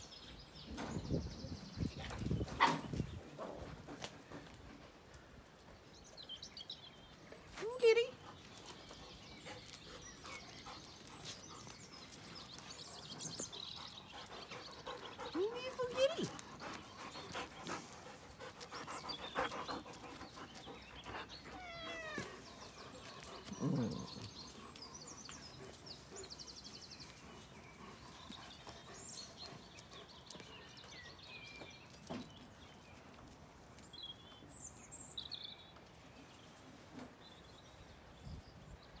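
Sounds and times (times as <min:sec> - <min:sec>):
cat meowing: 0:21.5 - 0:22.4.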